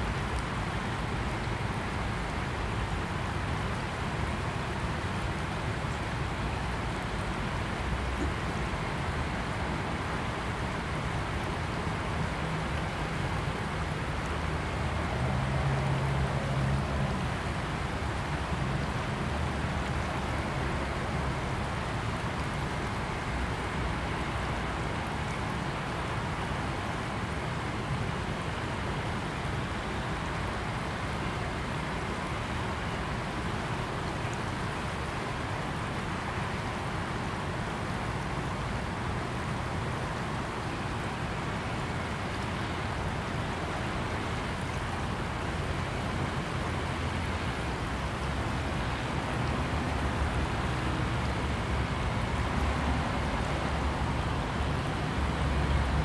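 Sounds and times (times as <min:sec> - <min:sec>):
fast-flowing river rushing: 0:00.0 - 0:56.0.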